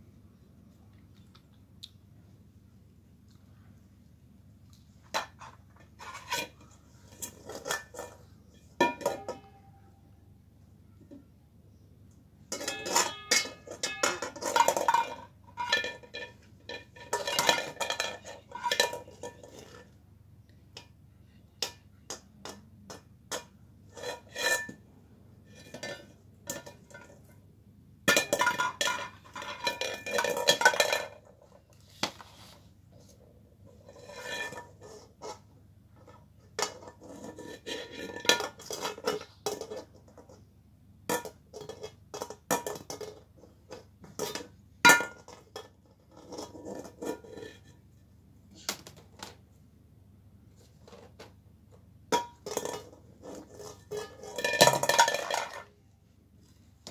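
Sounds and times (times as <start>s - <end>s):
metal bowl clattering and ringing: 8.6s - 9.8s, 12.5s - 19.2s.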